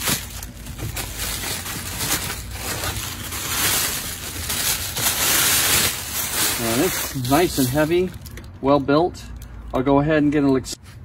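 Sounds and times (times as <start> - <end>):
plastic bag crinkling: 0.0 - 8.6.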